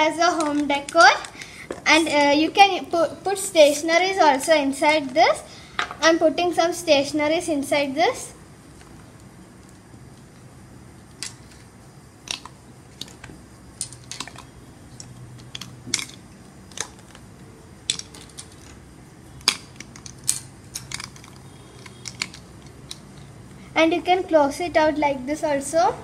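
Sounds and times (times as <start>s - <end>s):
plastic pieces clicking into coconut shell: 11.1s - 18.8s, 19.4s - 23.3s.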